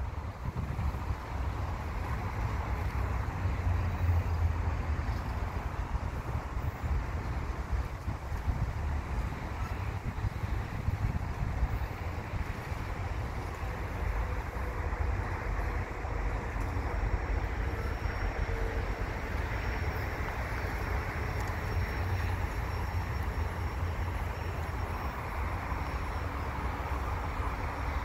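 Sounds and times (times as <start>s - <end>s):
freight train wheels rumbling: 0.0s - 28.0s.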